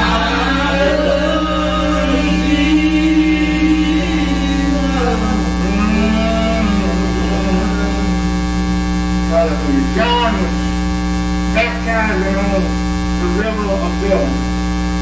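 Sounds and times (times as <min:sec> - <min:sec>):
faint voices: 0:00.0 - 0:08.3, 0:09.2 - 0:10.8
electrical mains hum: 0:00.0 - 0:15.0.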